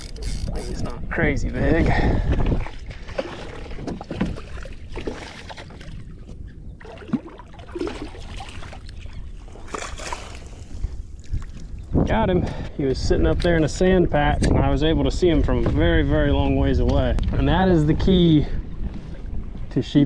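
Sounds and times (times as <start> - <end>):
water sloshing against kayak: 0.0 - 13.7
wind rumbling on microphone: 0.0 - 20.0.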